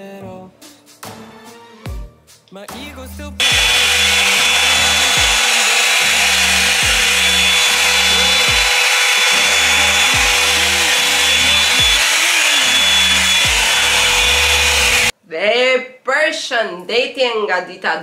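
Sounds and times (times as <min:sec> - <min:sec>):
hair dryer whining: 0:03.4 - 0:15.2.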